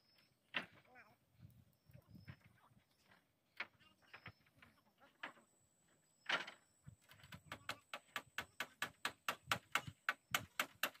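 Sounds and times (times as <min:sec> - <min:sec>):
hammer nailing wooden boards: 0:07.1 - 0:11.0.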